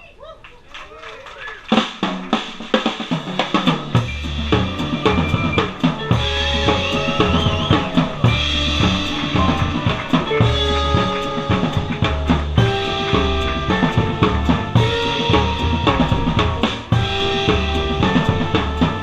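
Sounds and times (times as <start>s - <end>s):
jazz drum kit: 1.6s - 19.0s
bass line: 3.2s - 19.0s
long held notes: 3.9s - 19.0s.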